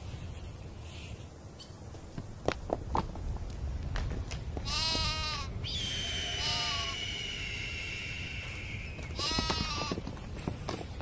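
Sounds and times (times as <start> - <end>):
goats bleating: 4.7 - 5.5, 6.4 - 7.0, 9.2 - 10.0
high whistle-like tone: 5.7 - 9.2.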